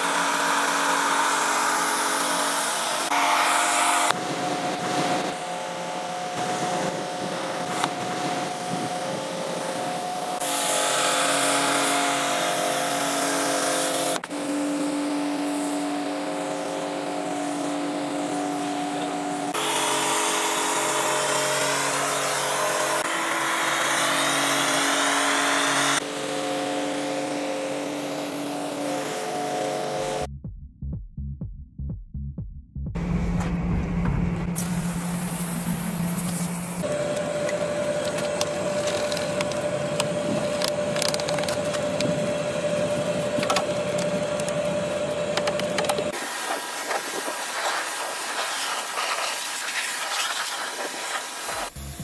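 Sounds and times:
car-cleaning machine humming: 0:00.0 - 0:30.3, 0:33.0 - 0:52.0
electronic music beat: 0:30.3 - 0:34.2
loud hiss: 0:34.6 - 0:36.8, 0:46.2 - 0:52.0.

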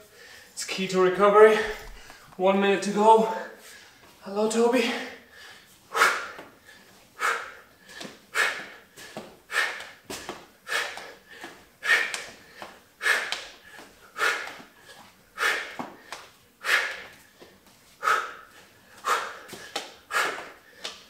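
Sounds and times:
man exhaling forcefully: 0:05.9 - 0:06.4, 0:07.2 - 0:14.6, 0:15.4 - 0:17.1, 0:18.0 - 0:21.0.

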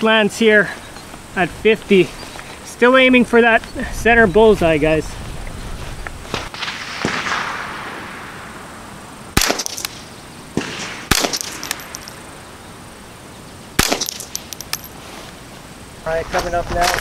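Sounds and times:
rifle shots: 0:06.5 - 0:08.4, 0:09.4 - 0:12.2, 0:13.8 - 0:14.5.

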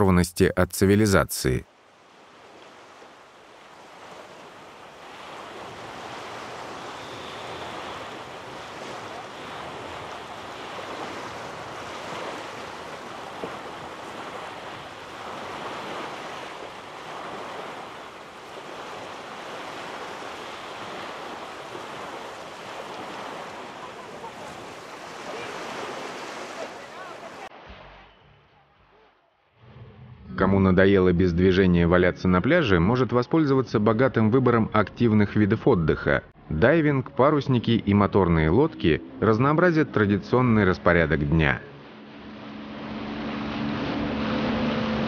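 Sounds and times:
wind: 0:00.0 - 0:45.0
small waves washing ashore: 0:00.8 - 0:27.7, 0:37.9 - 0:45.0.

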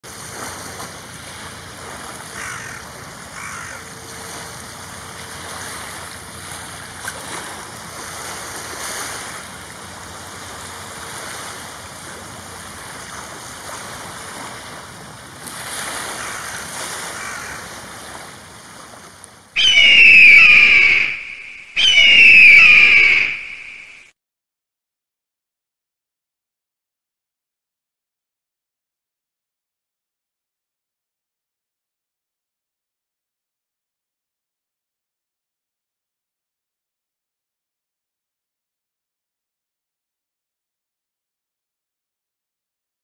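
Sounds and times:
crow cawing: 0:02.4 - 0:03.9, 0:16.1 - 0:17.7, 0:19.6 - 0:23.8
shrill eagle call: 0:19.6 - 0:24.1.

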